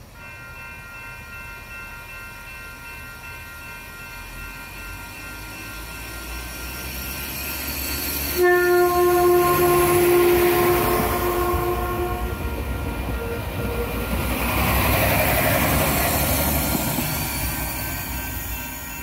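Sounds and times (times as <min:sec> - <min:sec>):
train passing rumble: 0:00.0 - 0:19.0
train horn blast: 0:08.3 - 0:14.0.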